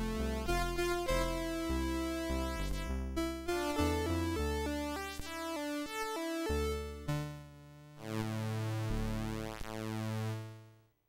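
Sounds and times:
chiptune synthesizer music: 0:00.0 - 0:07.5.

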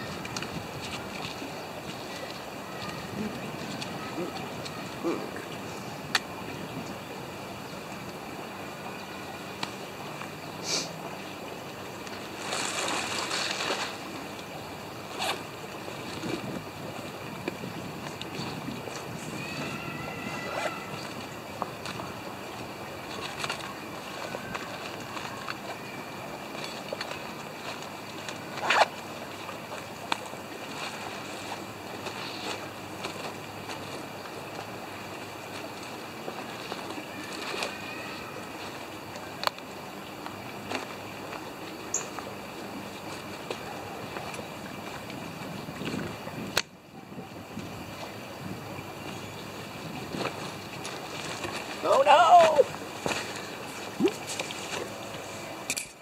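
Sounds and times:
outdoor background hiss: 0:00.0 - 0:56.0
zipper zipping: 0:15.2 - 0:15.4.

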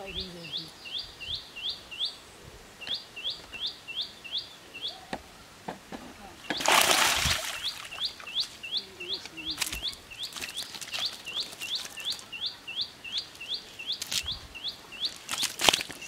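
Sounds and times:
small bird chirping: 0:00.0 - 0:05.2, 0:06.4 - 0:16.0
fish flapping and splashing: 0:06.5 - 0:08.0, 0:09.5 - 0:12.3, 0:15.2 - 0:16.0.

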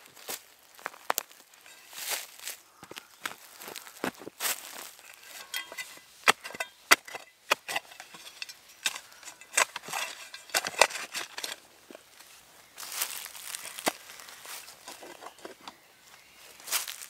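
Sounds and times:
shovel digging into soil: 0:04.5 - 0:15.7.

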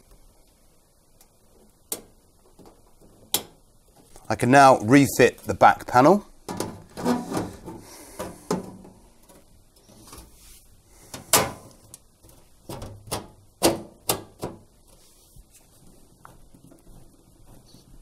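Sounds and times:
knocks and clicks of metal panel: 0:06.5 - 0:09.4, 0:11.1 - 0:11.7, 0:12.3 - 0:14.7.

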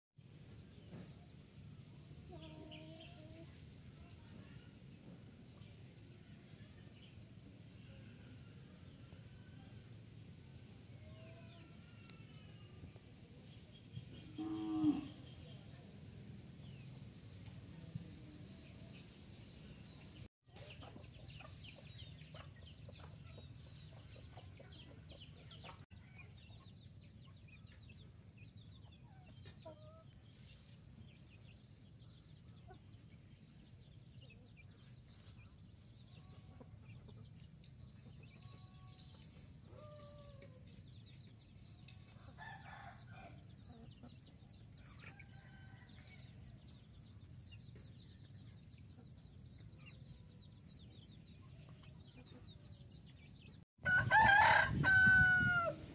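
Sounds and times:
rooster crowing: 0:53.8 - 0:55.9.

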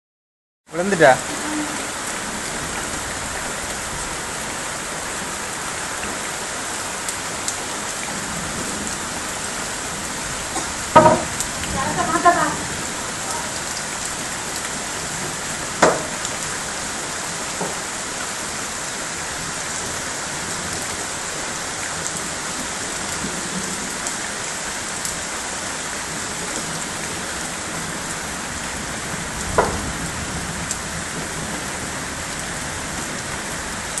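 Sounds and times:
heavy rain and hail on pavement: 0:00.7 - 0:34.0
sharp knocks: 0:10.6 - 0:11.4, 0:15.8 - 0:16.2.

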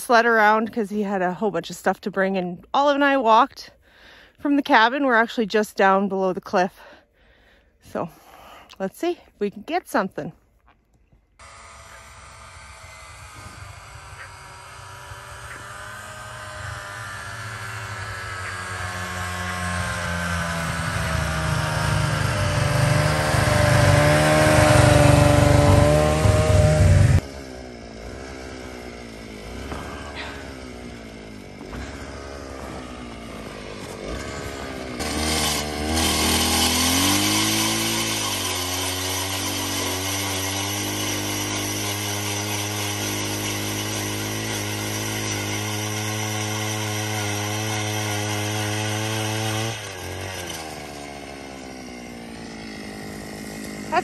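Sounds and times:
snowmobile engine: 0:00.0 - 0:03.7, 0:11.4 - 0:54.0
ice auger engine boring: 0:11.4 - 0:54.0.

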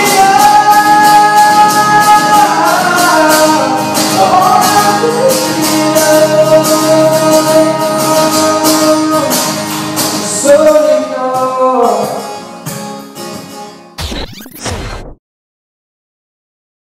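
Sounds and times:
man singing: 0:00.0 - 0:12.5
guitar: 0:00.0 - 0:15.2.

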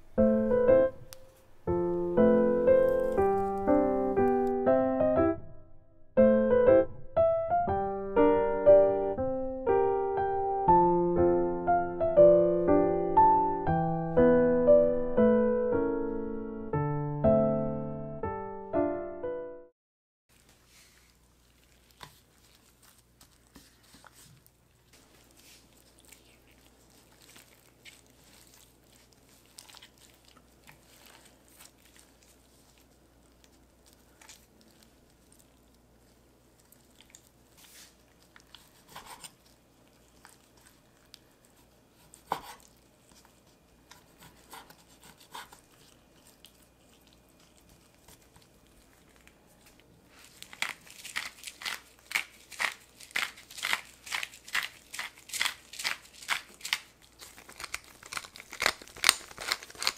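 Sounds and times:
chicken skin tearing: 0:02.8 - 0:04.5, 0:21.0 - 0:59.9.

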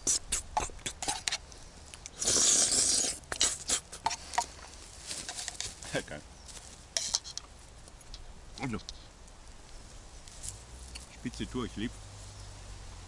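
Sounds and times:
rustle: 0:00.0 - 0:13.0.

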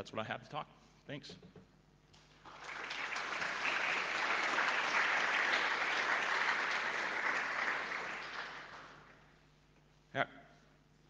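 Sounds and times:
audience applause: 0:02.3 - 0:09.2.

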